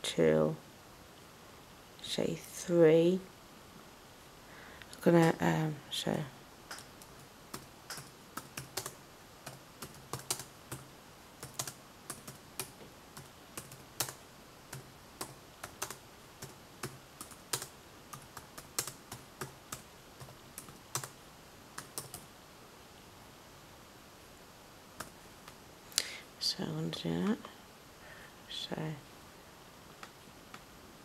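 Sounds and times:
laptop keyboard typing: 6.7 - 21.2, 21.8 - 22.3, 25.0 - 25.6.

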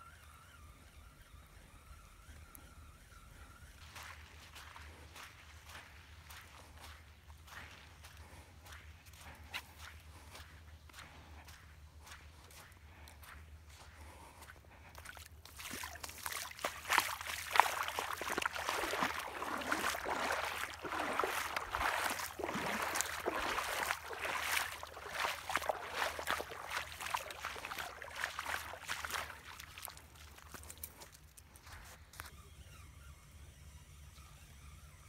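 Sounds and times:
feet wading through shallow water: 0.1 - 32.2.

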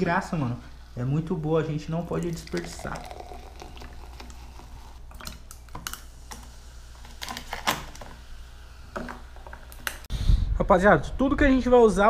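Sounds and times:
soda pouring and fizzing: 0.7 - 9.9.

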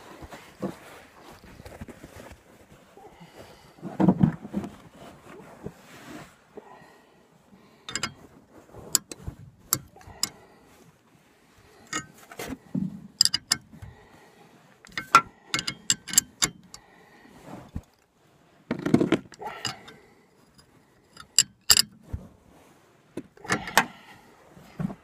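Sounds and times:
wrench clicking on nut: 7.9 - 8.2, 8.9 - 10.3, 11.9 - 12.1, 13.2 - 13.8, 14.9 - 16.8, 21.1 - 22.0.

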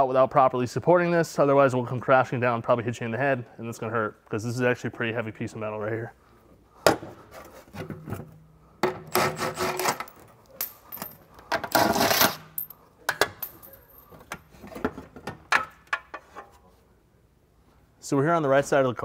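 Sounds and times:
metal clinks and scraping: 9.1 - 14.9.

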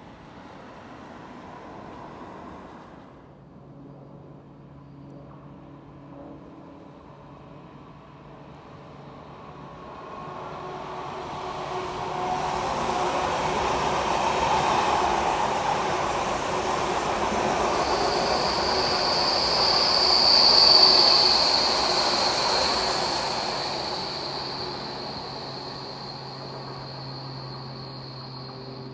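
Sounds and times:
train wheels rumbling on rails: 9.4 - 28.9
high squeal: 9.7 - 28.9.

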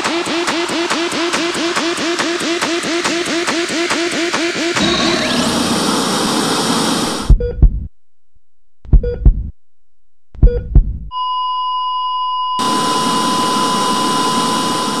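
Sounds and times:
heartbeat thumps: 7.2 - 8.0, 8.8 - 9.6, 10.3 - 11.1.

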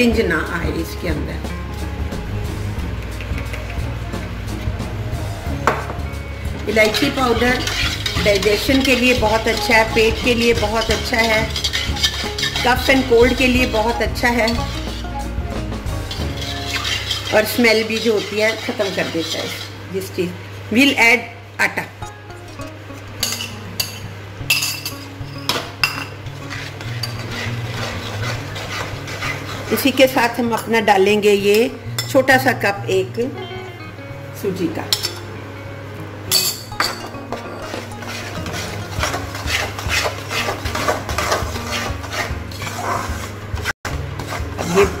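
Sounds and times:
spatula scraping and stirring: 6.4 - 20.0, 26.0 - 30.8, 37.1 - 45.0.

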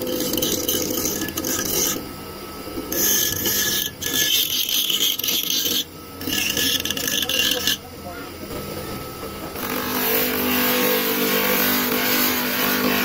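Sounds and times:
blade grinding on abrasive wheel: 0.0 - 2.0, 2.9 - 8.1
electric motor hum: 0.0 - 13.0.

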